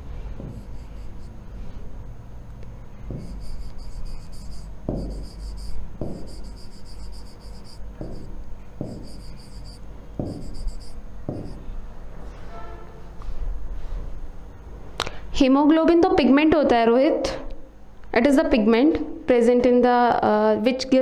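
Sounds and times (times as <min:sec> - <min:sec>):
low steady hum: 0:00.0 - 0:15.6
soft thumps: 0:00.3 - 0:01.1, 0:03.1 - 0:11.7
marker squeaking on whiteboard: 0:00.4 - 0:01.4, 0:03.1 - 0:11.7.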